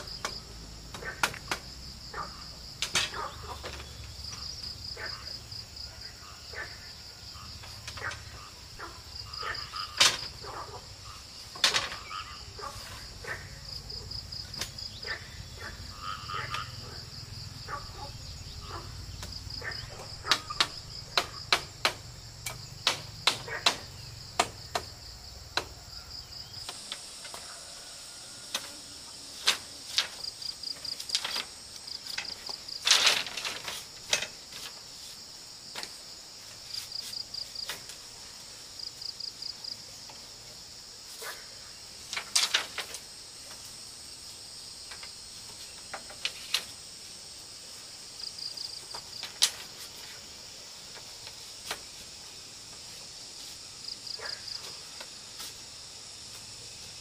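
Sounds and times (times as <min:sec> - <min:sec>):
bamboo strips clacking: 0:00.0 - 0:01.7, 0:02.8 - 0:04.4, 0:09.7 - 0:10.6, 0:11.4 - 0:12.2, 0:19.2 - 0:25.8, 0:28.4 - 0:35.0, 0:42.0 - 0:43.8, 0:44.8 - 0:46.8, 0:48.8 - 0:50.3
insects chirping: 0:00.0 - 0:57.0.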